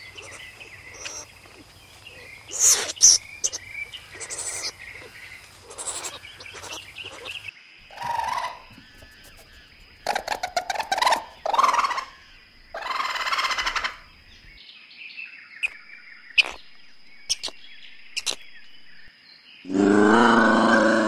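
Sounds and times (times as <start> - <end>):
raccoon chittering: 0.0 - 14.1, 15.6 - 18.7
faint chirps: 0.0 - 14.6, 15.4 - 21.0
ocelot yowl: 19.7 - 21.0.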